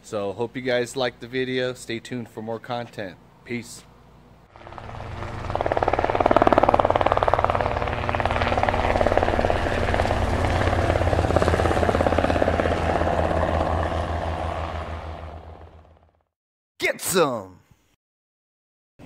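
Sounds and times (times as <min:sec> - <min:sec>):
helicopter rotor beating: 0:04.5 - 0:16.3
low engine hum: 0:04.6 - 0:16.2.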